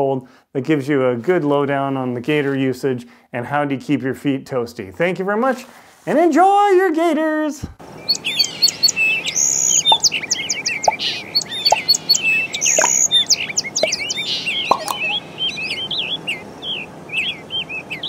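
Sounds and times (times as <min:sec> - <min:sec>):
small birds chirping and trilling: 0:07.8 - 0:18.0.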